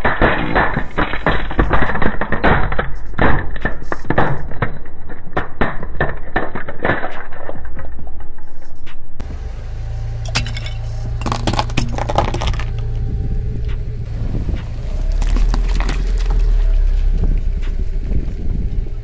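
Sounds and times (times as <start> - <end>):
plastic toys cracking under tyre: 0.0 - 8.5, 11.2 - 12.9, 14.6 - 18.2
car rumble: 9.2 - 19.0.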